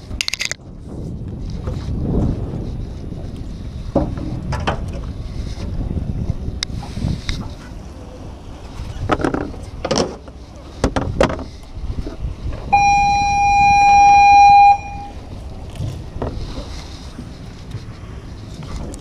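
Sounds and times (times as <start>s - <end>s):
horn blast: 12.7s - 15.2s.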